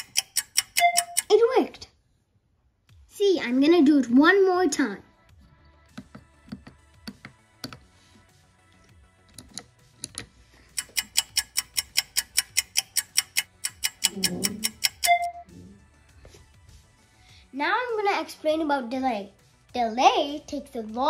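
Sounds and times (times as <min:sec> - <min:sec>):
push-buttons clicking: 0:00.0 - 0:01.3, 0:10.8 - 0:15.4
rapid even ticking: 0:00.0 - 0:01.3, 0:10.7 - 0:15.3
short electronic beep: 0:00.6 - 0:01.3, 0:14.9 - 0:15.5.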